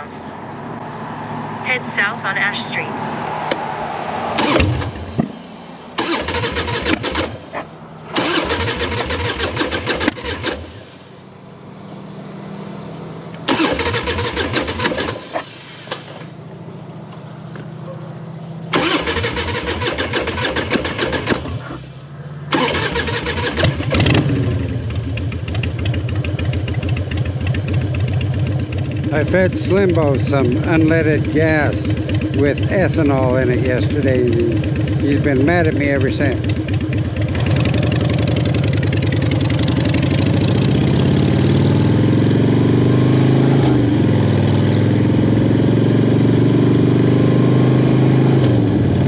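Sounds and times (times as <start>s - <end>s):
motorcycle engine cranking on starter: 4.4s - 5.2s, 6.0s - 7.4s, 8.1s - 10.8s, 13.4s - 16.2s, 18.7s - 21.7s, 22.5s - 27.0s
motorcycle engine idling: 23.0s - 41.2s.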